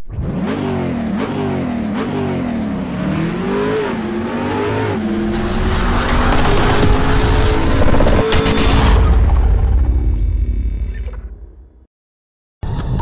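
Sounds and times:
car engine revving: 0.1 - 9.8
rush of noise: 3.2 - 10.8.

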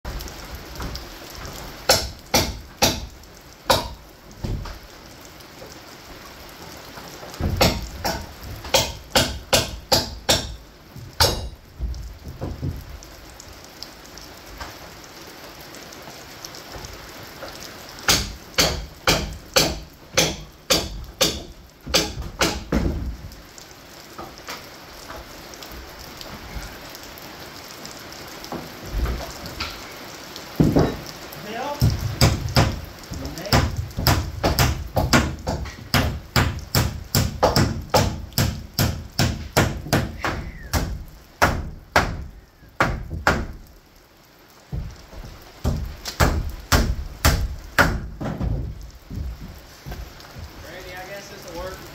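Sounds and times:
steady low hiss: 0.1 - 51.9
hammer striking nails: 1.9 - 3.1, 7.4 - 10.6, 11.2 - 11.6, 18.1 - 23.0, 31.8 - 32.8, 33.5 - 43.6, 45.6 - 49.3.

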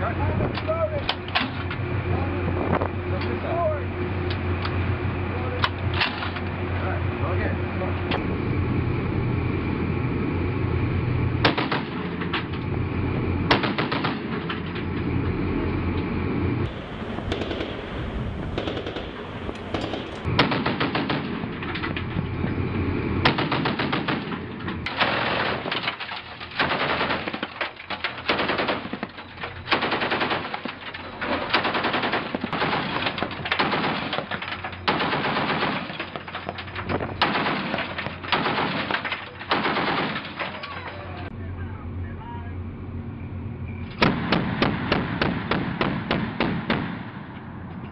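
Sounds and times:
steady rumble: 0.0 - 47.9
heavy machine gun firing: 11.4 - 12.4, 13.4 - 14.6, 16.7 - 22.0, 23.2 - 41.2, 44.0 - 47.4.

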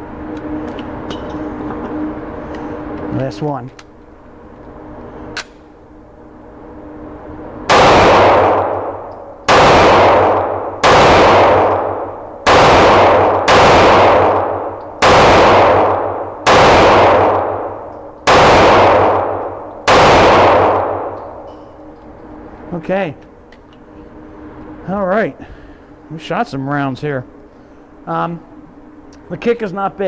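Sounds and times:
pistol shots echoing indoors: 7.7 - 21.9.

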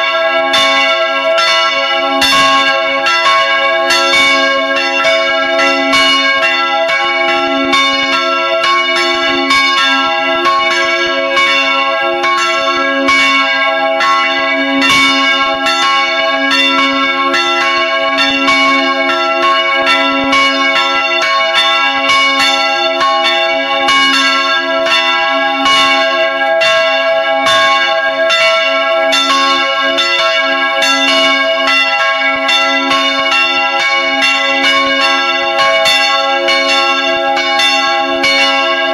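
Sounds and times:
church bells ringing: 0.0 - 38.9.

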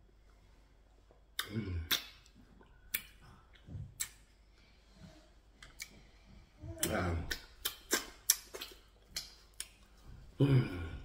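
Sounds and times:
lip smacks and clicks: 1.3 - 4.3, 5.6 - 6.0, 6.8 - 9.9
man chewing: 7.4 - 10.0.

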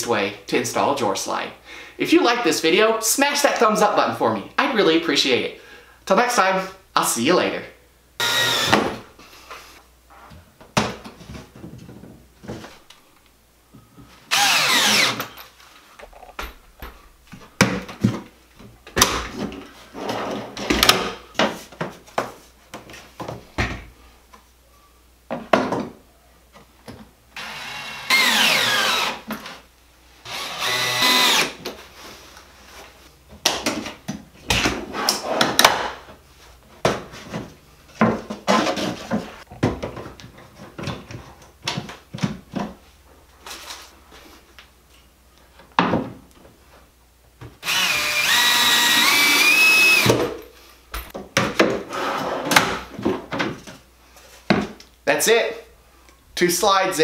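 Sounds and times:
power drill driving screws: 8.2 - 9.0, 14.3 - 15.4, 27.4 - 29.6, 30.2 - 31.6, 47.6 - 50.2.

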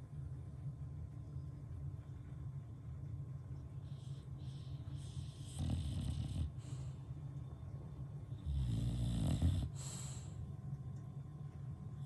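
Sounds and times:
dog snoring: 3.8 - 7.0, 8.4 - 10.4
breathy hiss: 9.6 - 10.4.

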